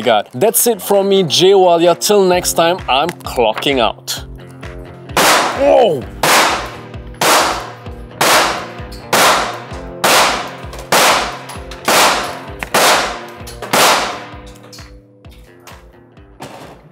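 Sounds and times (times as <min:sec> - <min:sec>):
pistol shots echoing indoors: 0:05.1 - 0:05.6, 0:06.2 - 0:14.8.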